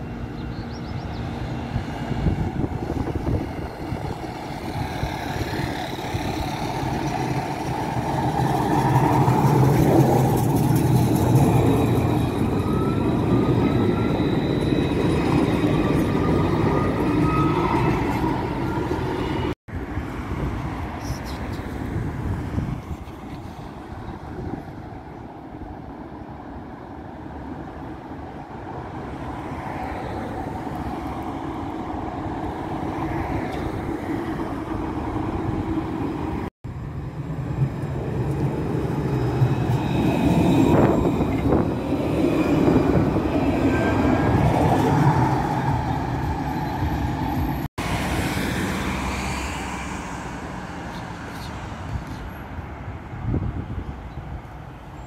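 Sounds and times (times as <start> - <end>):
trams running by: 0.0 - 55.0.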